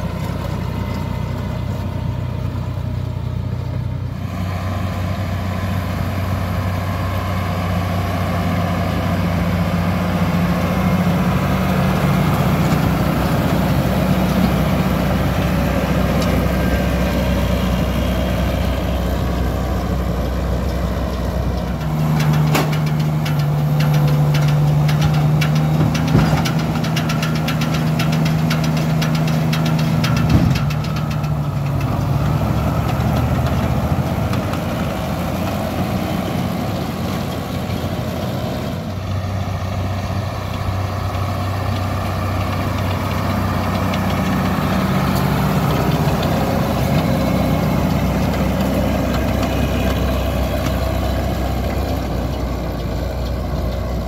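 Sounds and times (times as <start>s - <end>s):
tractor diesel engine: 0.0s - 54.0s
sharp knocks: 21.9s - 31.3s.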